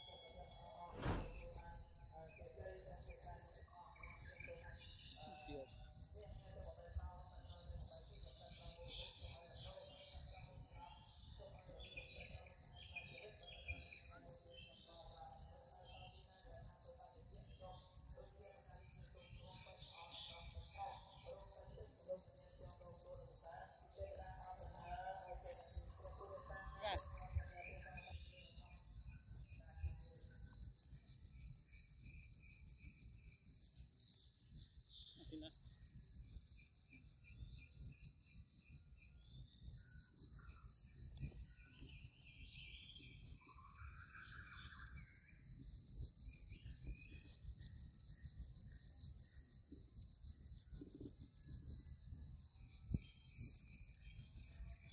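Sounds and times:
insects pulsing call: 0.0s - 54.9s.

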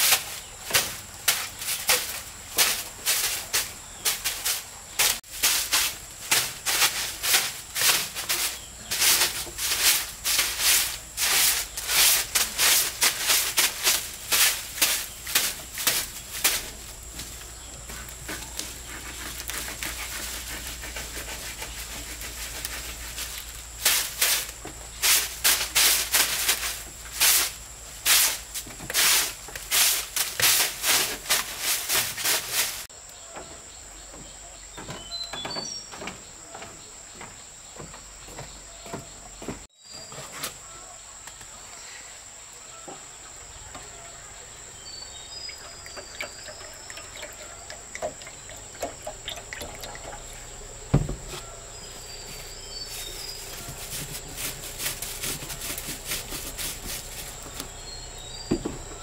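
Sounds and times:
rhythmic scraping strokes: 0.0s - 32.9s, 51.8s - 58.0s
high insect drone: 0.0s - 40.0s, 40.6s - 59.0s.

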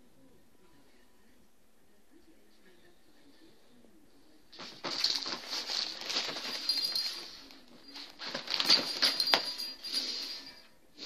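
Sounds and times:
nylon tunnel rustling: 4.6s - 9.8s
light metallic jingle: 4.6s - 10.8s.

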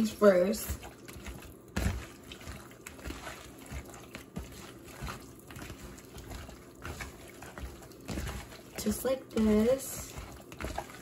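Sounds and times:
hand squishing meat in marinade: 0.0s - 11.0s.

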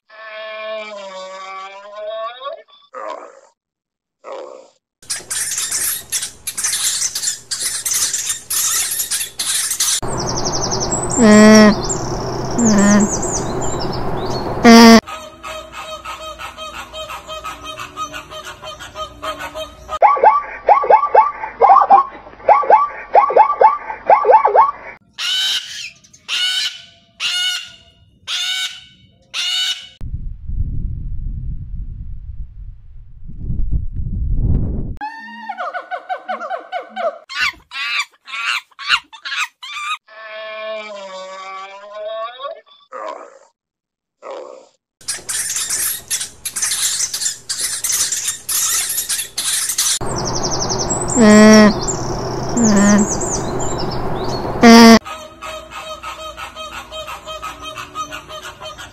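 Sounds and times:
hamsters squeaking: 5.0s - 15.0s, 45.0s - 55.0s
small birds chirping: 5.1s - 15.0s, 45.1s - 55.0s
low rumbling noise: 10.0s - 15.0s, 50.0s - 55.0s
alpaca calling: 10.1s - 13.8s, 50.4s - 53.3s.

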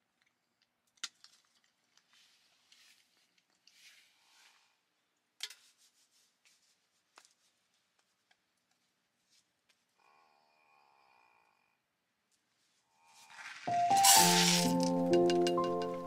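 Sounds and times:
music: 13.7s - 16.0s.

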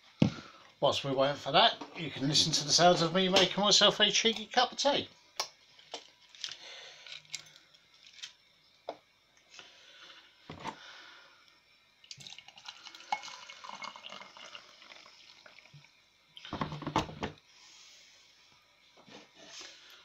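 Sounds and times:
running water: 12.1s - 15.9s.

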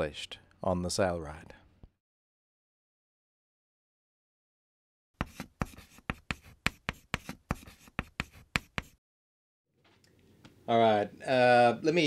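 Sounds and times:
chalk tapping and scratching: 5.2s - 9.0s.

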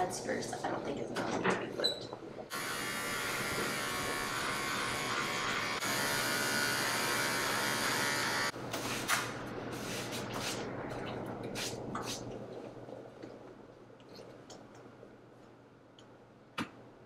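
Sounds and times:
electric pet trimmer buzzing: 2.5s - 8.5s.

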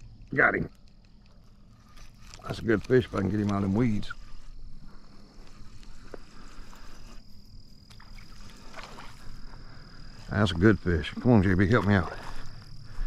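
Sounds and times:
fish splashing at water surface: 7.9s - 9.6s.

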